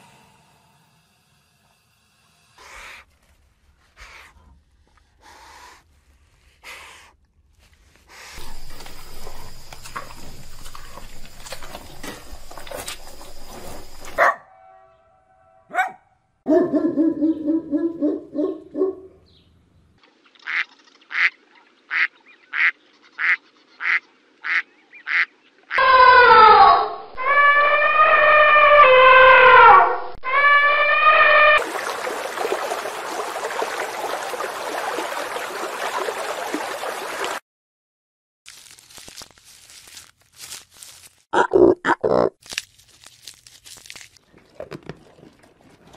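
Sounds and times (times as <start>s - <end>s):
low pitched animal calls: 25.8s - 31.6s.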